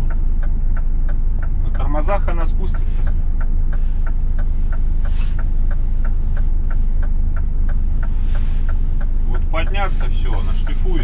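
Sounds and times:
diesel truck engine idling: 0.0 - 11.0.

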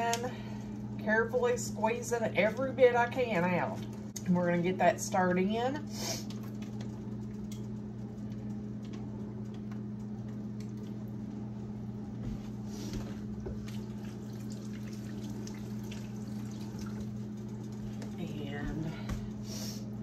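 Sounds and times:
steady low hum: 0.0 - 20.0
tap water running: 13.4 - 19.2.

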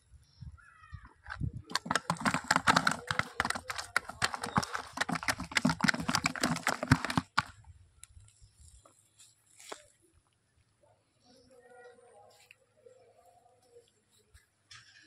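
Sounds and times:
fish flapping in plastic bucket: 1.2 - 7.6.

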